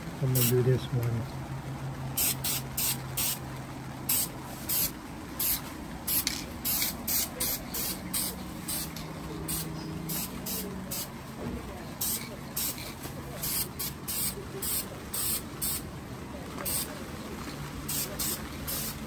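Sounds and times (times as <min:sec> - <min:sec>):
spray paint can hissing: 0:02.2 - 0:03.4, 0:04.1 - 0:11.1, 0:12.0 - 0:15.8, 0:16.6 - 0:16.9, 0:17.8 - 0:19.0.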